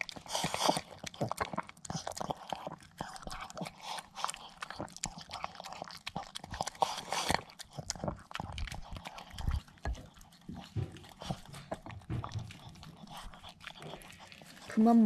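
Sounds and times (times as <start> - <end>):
dog chewing and licking: 0.0 - 15.0.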